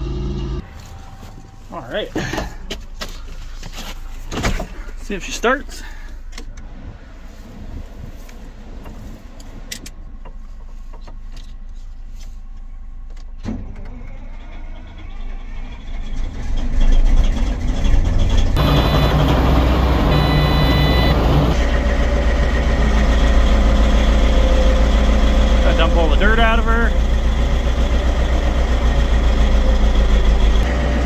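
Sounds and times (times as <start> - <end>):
diesel engine starting and running: 0.0 - 31.0
high pulsing tone: 18.6 - 21.7.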